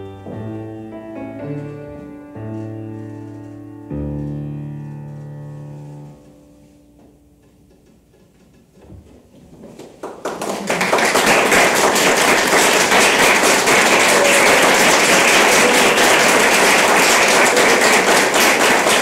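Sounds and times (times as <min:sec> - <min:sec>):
audience applauding: 0:09.8 - 0:19.0.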